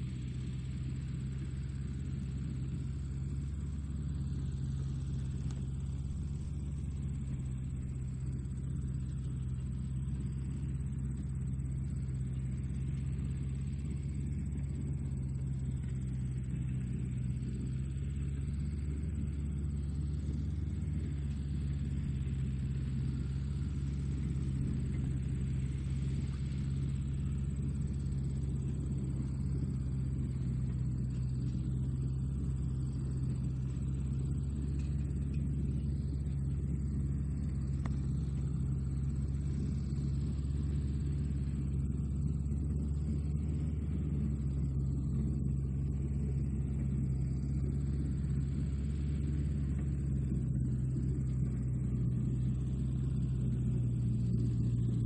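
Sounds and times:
tractor engine running steadily: 0.0s - 55.0s.

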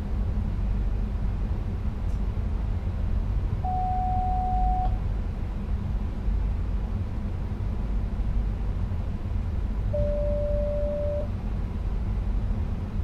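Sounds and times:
train cab low rumble: 0.0s - 13.0s
electronic beep: 10.0s - 11.3s.

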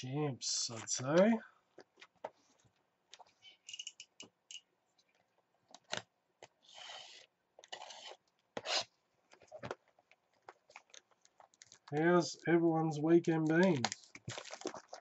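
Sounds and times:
utility knife scraping shrink-wrap: 6.6s - 8.9s.

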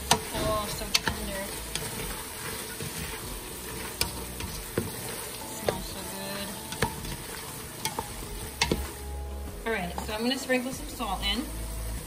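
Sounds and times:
vegetables sizzling in a pot: 0.0s - 12.0s
plastic spoon knocking against pot: 6.7s - 7.2s, 7.9s - 8.9s.

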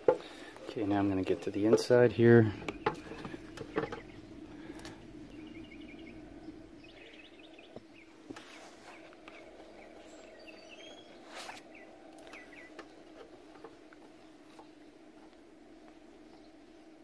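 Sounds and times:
low hum: 0.0s - 17.0s
faint high chirps: 9.0s - 12.8s.

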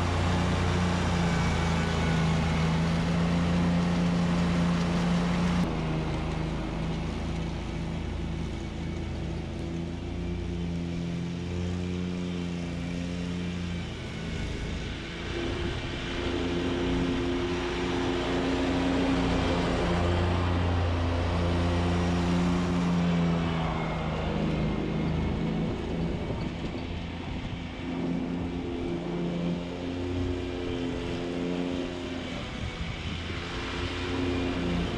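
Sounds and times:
lawn mower engine running: 0.0s - 34.9s.

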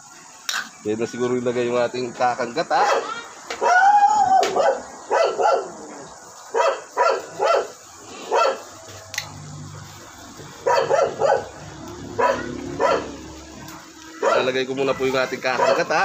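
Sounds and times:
dog barking: 2.8s - 3.8s, 4.5s - 5.8s, 6.5s - 8.7s, 10.6s - 11.6s, 12.2s - 13.2s, 14.2s - 14.6s, 15.6s - 16.0s.

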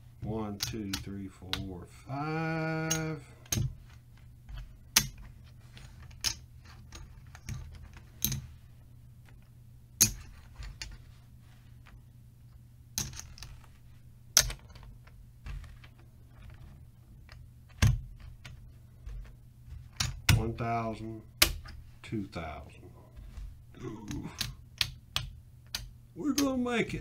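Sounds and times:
casino chips clacking: 2.7s - 3.7s.

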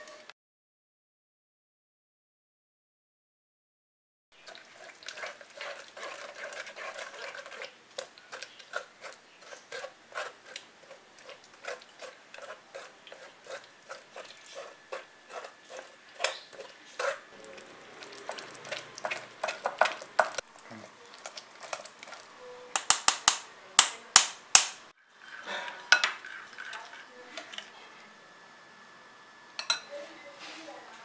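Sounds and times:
spoon scraping pulp through strainer: 4.4s - 22.4s.

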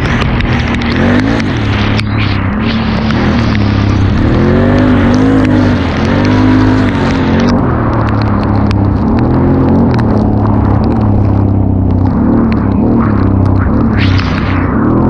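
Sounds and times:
atv engine pulling hard: 0.0s - 8.2s
wind and tyre noise: 0.0s - 15.0s.

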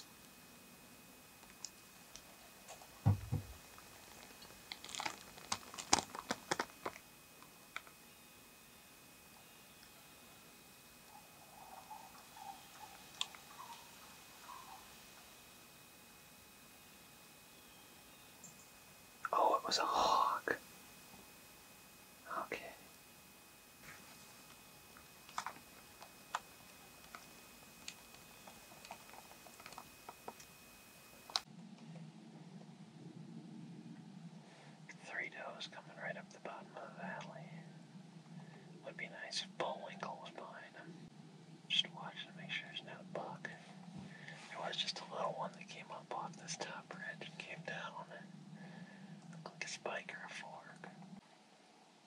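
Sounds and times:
faint irregular clicks: 1.3s - 8.0s, 9.3s - 15.4s, 24.3s - 32.1s
dry leaves crunching: 4.1s - 6.9s.

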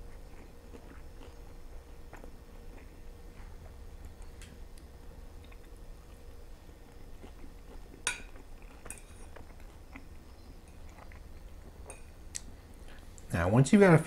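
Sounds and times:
fork clinking on ceramic plate: 8.0s - 9.2s.

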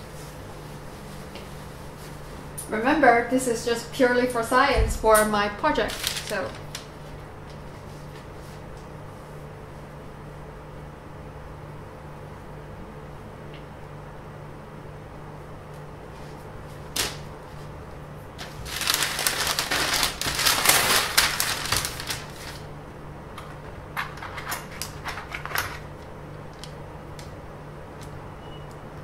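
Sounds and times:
paper rustling: 5.7s - 8.6s, 18.4s - 22.7s.

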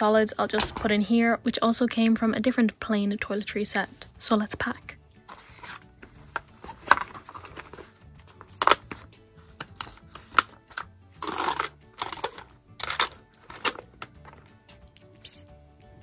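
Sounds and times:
background music: 0.0s - 16.0s
toiletry bottles clicking and knocking: 9.6s - 14.5s.

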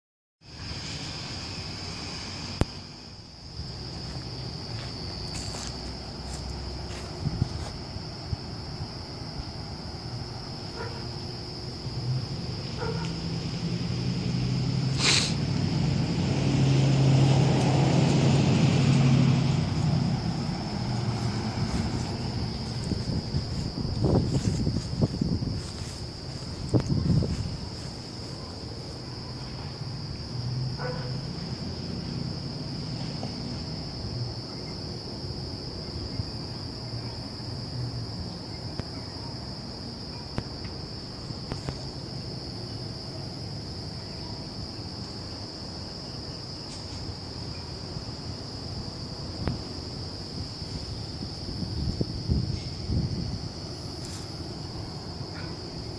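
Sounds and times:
crickets chirping: 0.4s - 55.9s
low rumble on microphone: 17.2s - 28.1s.

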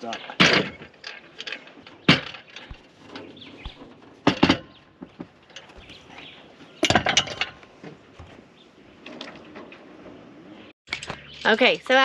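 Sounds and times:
clattering knocks and clinks: 0.2s - 8.3s.

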